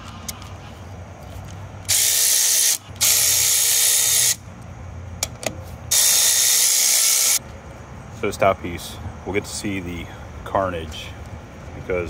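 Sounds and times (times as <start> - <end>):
cordless power driver whirring: 1.8 - 4.4, 5.9 - 7.4.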